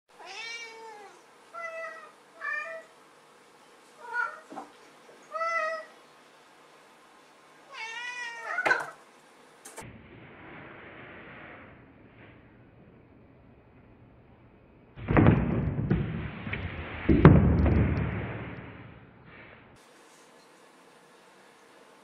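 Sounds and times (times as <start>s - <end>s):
cat meowing: 0.2s - 2.9s, 4.0s - 4.5s, 7.7s - 9.0s.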